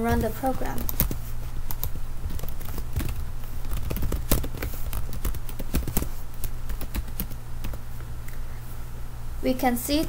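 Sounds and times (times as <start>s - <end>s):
low steady hum: 0.0s - 10.0s
keyboard keys clicking: 0.1s - 7.8s.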